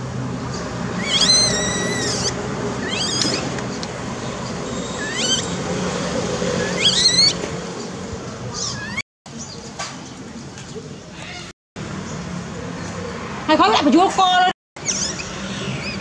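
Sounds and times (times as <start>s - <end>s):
baby monkey calling: 0.9s - 3.6s, 4.8s - 5.6s, 6.6s - 7.4s, 8.5s - 9.0s, 14.8s - 16.0s.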